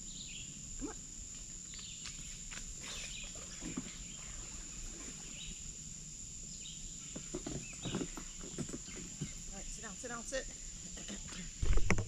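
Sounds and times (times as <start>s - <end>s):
birds chirping: 6.5s - 11.6s.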